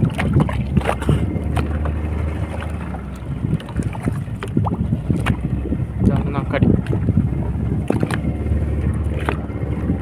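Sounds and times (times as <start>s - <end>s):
small splashes: 0.0s - 5.5s, 7.8s - 9.5s
water against boat hull: 0.0s - 10.0s
wind rumble on microphone: 0.0s - 10.0s.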